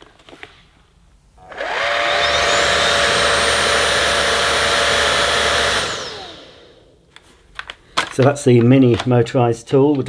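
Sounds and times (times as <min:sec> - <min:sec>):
vacuum cleaner motor whining: 0:01.4 - 0:06.9.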